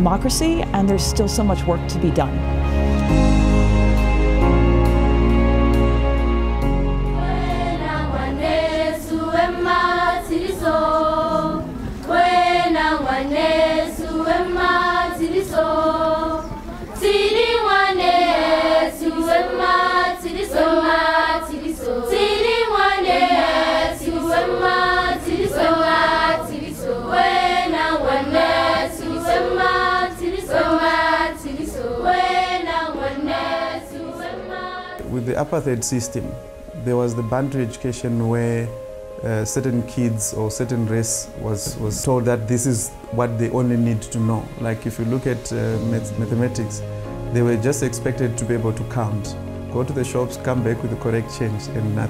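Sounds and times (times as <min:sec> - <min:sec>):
choir singing in harmony: 0:02.4 - 0:35.9.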